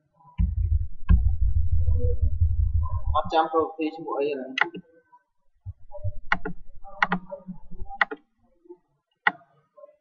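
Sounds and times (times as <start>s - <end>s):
low dull rumble: 0.4s - 3.4s
computer mouse clicks: 4.6s - 4.8s, 6.3s - 8.2s.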